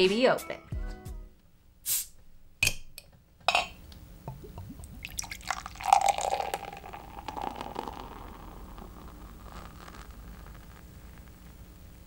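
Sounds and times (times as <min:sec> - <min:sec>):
bottle hiss: 0:01.8 - 0:02.2
beer pouring into glass: 0:04.3 - 0:11.2.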